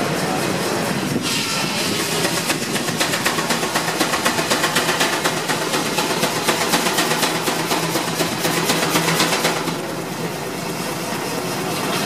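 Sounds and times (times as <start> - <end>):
steam engine exhaust beats: 0.0 - 12.0
steam hiss: 0.0 - 12.0.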